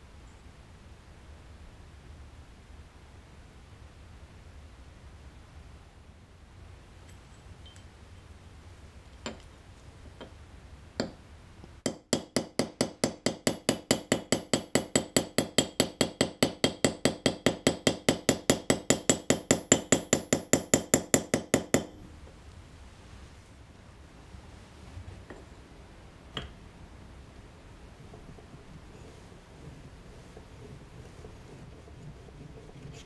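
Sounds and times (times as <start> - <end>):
hammer tapping metal blade: 11.9 - 21.9.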